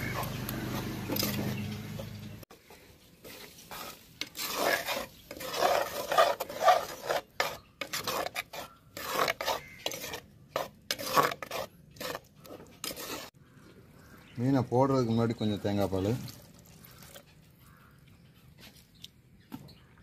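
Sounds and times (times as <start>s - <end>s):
metal spoon scraping clay pot: 0.0s - 2.2s, 3.2s - 13.4s.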